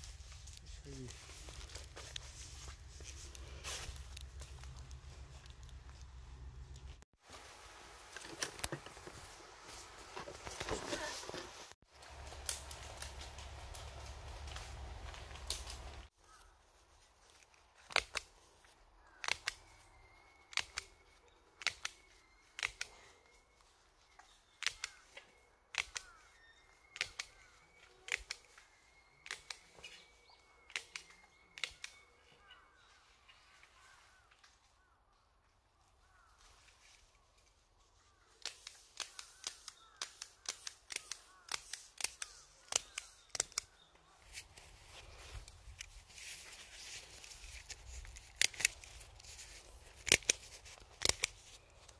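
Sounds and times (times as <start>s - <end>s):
plastic clips snapping: 38.4s - 43.7s, 47.6s - 51.6s.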